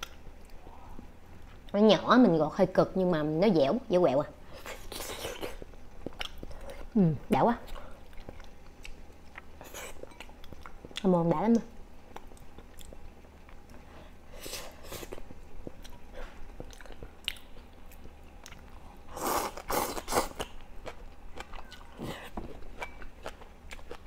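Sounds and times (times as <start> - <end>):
chewing crunchy food: 4.7 - 6.9, 7.7 - 11.1, 12.1 - 13.9, 14.8 - 24.0.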